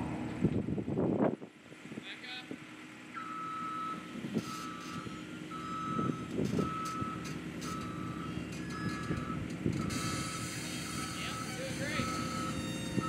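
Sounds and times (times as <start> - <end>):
diesel engine running: 0.0 - 13.0
travel alarm beeping: 3.2 - 13.0.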